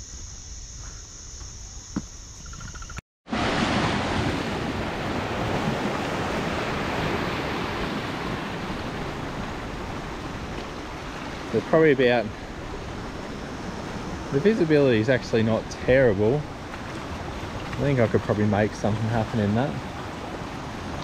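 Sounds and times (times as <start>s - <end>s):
insects droning: 0.0s - 3.0s, 4.4s - 21.0s
waves breaking on rocks: 3.3s - 21.0s.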